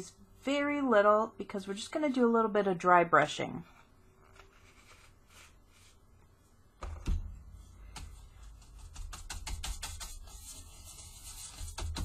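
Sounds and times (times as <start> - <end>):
paintbrush knock: 6.8 - 10.6
paintbrush tapping on paper plate: 7.8 - 10.3.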